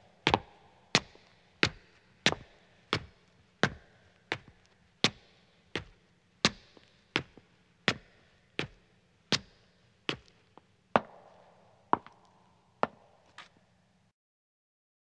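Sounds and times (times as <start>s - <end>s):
footsteps on stone stairs: 10.1s - 12.2s, 12.8s - 13.5s.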